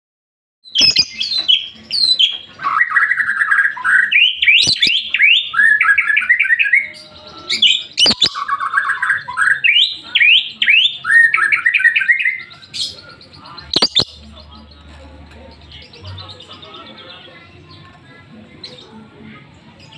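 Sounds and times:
lovebird singing rapid chirps: 0.7s - 2.3s, 2.9s - 14.8s.

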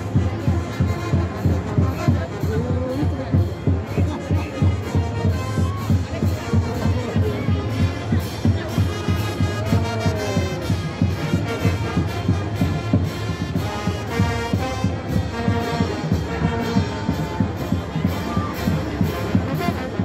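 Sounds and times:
brass band playing: 0.0s - 20.0s
steady drum beat: 0.0s - 20.0s.

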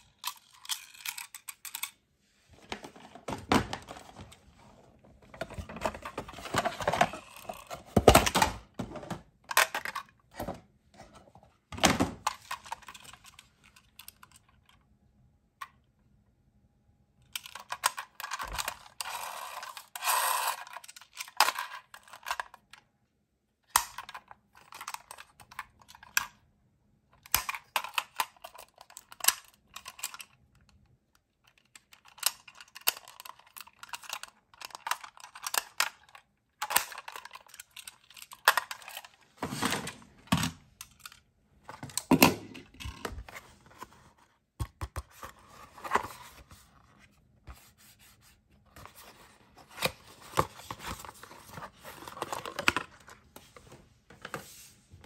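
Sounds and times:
small toy door opening and shutting: 0.0s - 2.0s, 17.3s - 22.8s, 31.5s - 47.0s
toy ambulance clicking and rattling: 0.0s - 2.0s, 17.3s - 22.8s, 23.7s - 26.4s, 27.2s - 39.2s.

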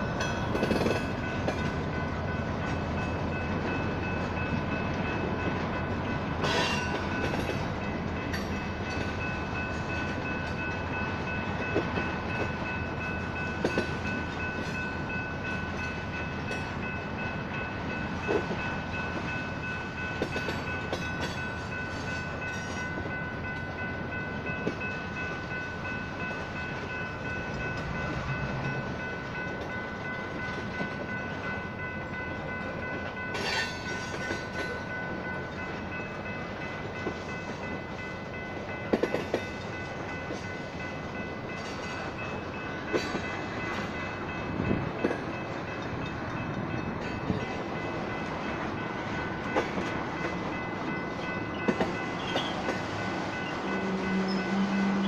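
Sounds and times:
crossing signal bells ringing: 0.0s - 55.0s
freight train rumbling past: 0.0s - 55.0s
train wheels knocking on rail joints: 0.2s - 1.8s, 38.8s - 40.5s, 42.8s - 48.4s, 51.6s - 55.0s.

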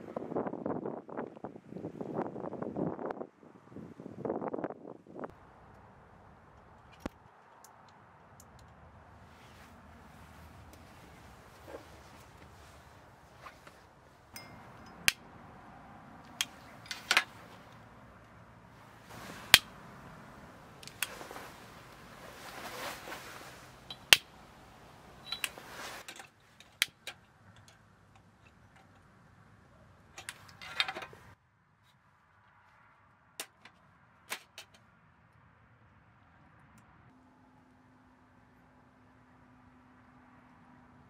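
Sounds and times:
brief rustling: 9.2s - 14.7s, 18.8s - 27.2s.

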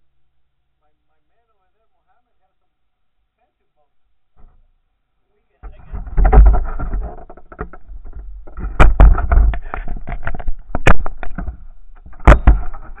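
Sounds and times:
sharp knocks: 5.6s - 13.0s
water knocks and slaps on hull: 6.0s - 12.9s.

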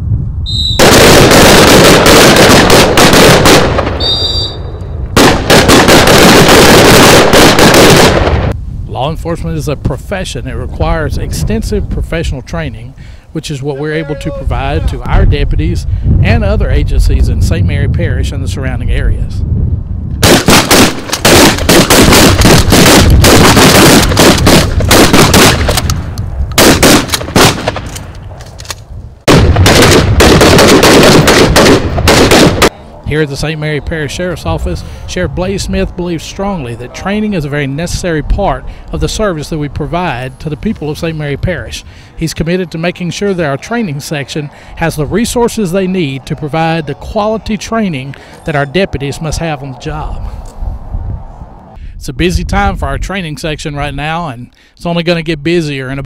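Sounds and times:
rapid overlapping gunfire: 0.8s - 4.0s, 5.2s - 8.5s, 20.2s - 25.8s, 26.6s - 27.9s, 29.3s - 32.8s
rifles firing rapid shots: 0.8s - 4.1s, 5.2s - 8.5s, 20.2s - 25.9s, 26.6s - 28.0s, 29.3s - 32.7s.

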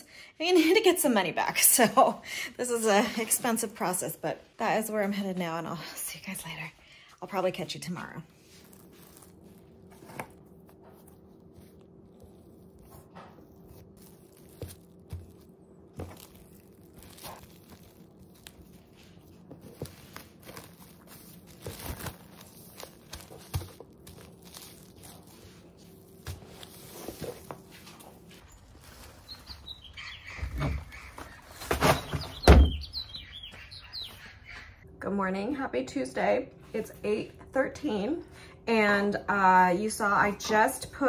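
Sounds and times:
low steady hum: 0.0s - 41.0s
plastic cling wrap crinkling: 7.4s - 30.1s
hands patting dough on wood: 8.4s - 29.1s.

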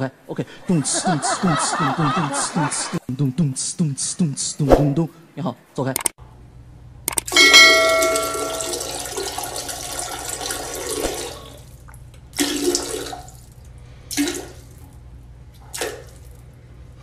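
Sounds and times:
toilet flushing: 7.7s - 14.9s.

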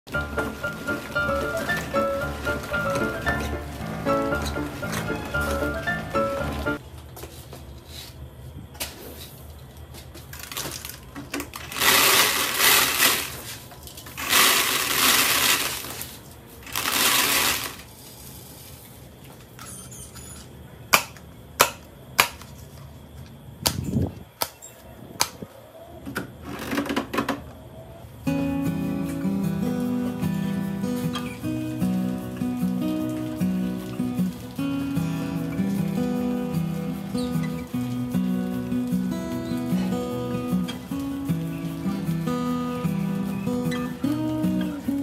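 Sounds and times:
rice pouring into plastic bucket: 0.1s - 6.6s, 11.6s - 18.7s, 29.8s - 39.6s.

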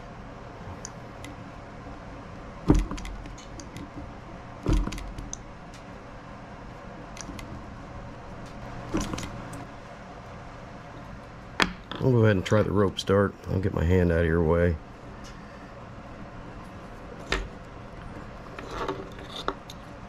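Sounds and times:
steady low hum: 0.0s - 20.0s
sharp knocks on wood: 2.7s - 3.1s.

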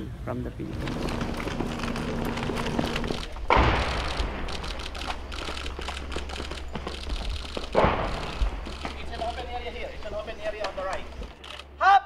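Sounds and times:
gunshots crackling: 0.8s - 5.6s, 7.7s - 9.2s
loud echoing gunshot: 3.5s - 4.5s, 7.8s - 8.6s.

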